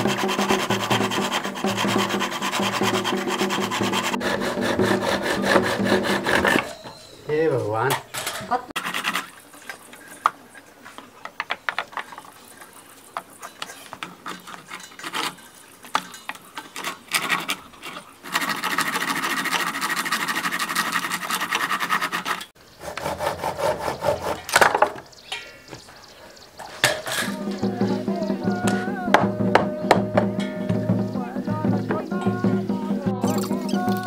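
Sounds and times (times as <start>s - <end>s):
wood scraping as levered: 0.0s - 25.1s.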